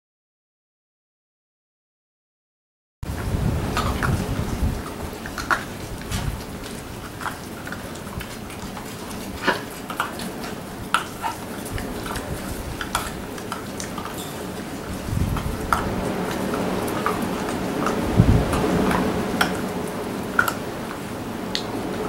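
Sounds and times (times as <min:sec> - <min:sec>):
steady background hiss: 0:03.1 - 0:22.0
puppies scuffling on concrete: 0:03.2 - 0:21.7.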